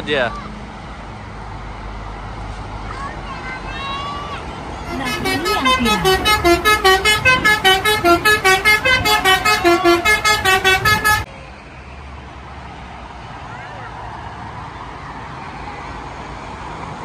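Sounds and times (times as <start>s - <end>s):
multi-tone bus horn tune: 4.9s - 11.3s.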